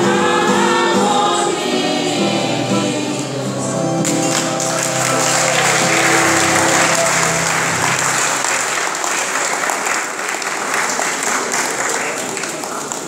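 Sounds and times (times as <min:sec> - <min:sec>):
held musical chord: 0:01.0 - 0:08.8
audience applauding: 0:04.0 - 0:13.0.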